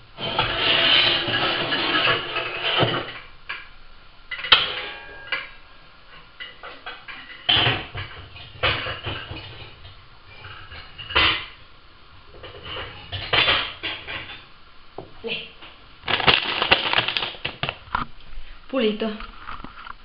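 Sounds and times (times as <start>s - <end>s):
pots and pans clanking: 0.2s - 3.7s, 4.3s - 11.7s, 12.3s - 15.1s.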